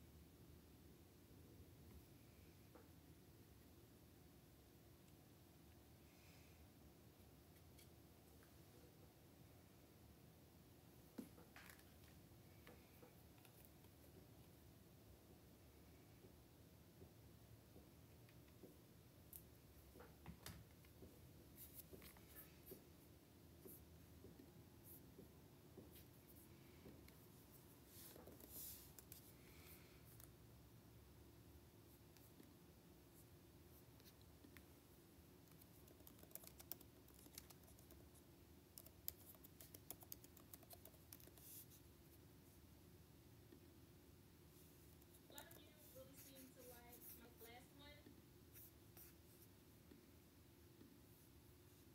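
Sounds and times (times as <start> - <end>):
faint small clicks and scratches: 7.5 - 8.6, 11.2 - 14.5, 23.6 - 30.4, 35.4 - 41.9
soft rustle: 20.8 - 30.4, 44.5 - 50.1.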